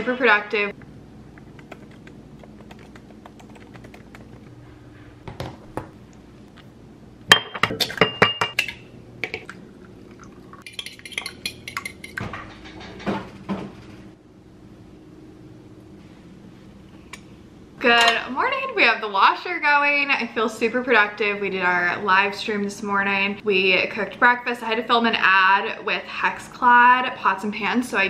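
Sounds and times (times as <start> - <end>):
keyboard tapping: 1.4 - 4.5.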